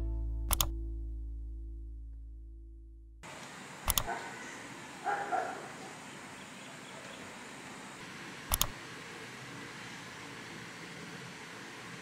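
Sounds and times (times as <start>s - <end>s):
sharp double clicks: 0.5s - 0.7s, 3.8s - 4.2s, 8.5s - 8.8s
room hiss: 5.7s - 12.0s.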